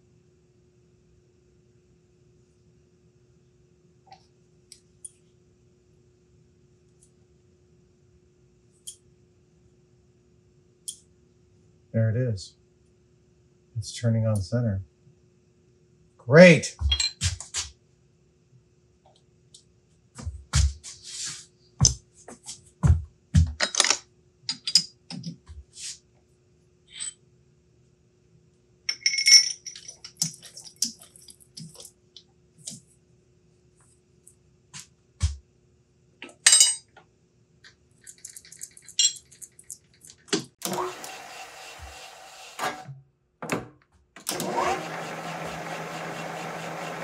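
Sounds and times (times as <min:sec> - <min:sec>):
metallic clinks and taps: 0:28.9 - 0:31.9.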